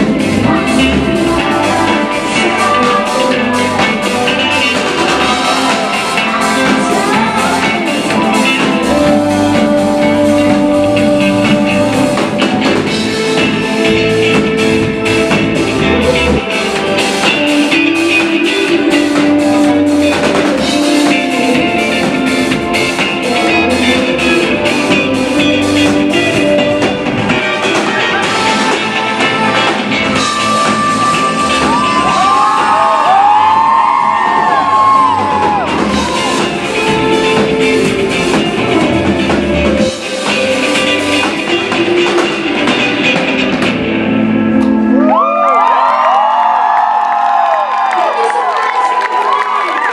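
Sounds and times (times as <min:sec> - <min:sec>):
drum kit beat: 0:00.0 - 0:44.4
electric bass guitar: 0:00.0 - 0:46.3
woman singing into microphone: 0:00.4 - 0:11.8.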